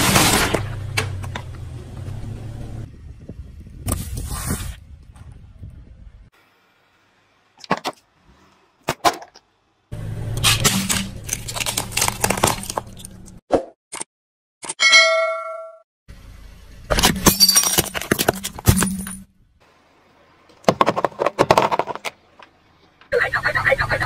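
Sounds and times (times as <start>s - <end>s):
car rumble: 0.0s - 6.3s
tyre crushing candies: 10.6s - 13.4s
bell ding: 14.8s - 15.8s.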